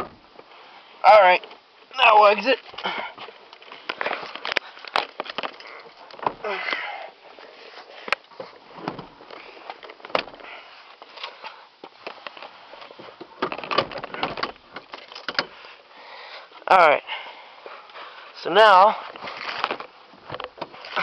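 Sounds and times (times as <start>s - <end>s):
clothing and seat fabric rustling: 0.0s - 16.6s
sharp clicks and knocks: 11.8s - 15.6s.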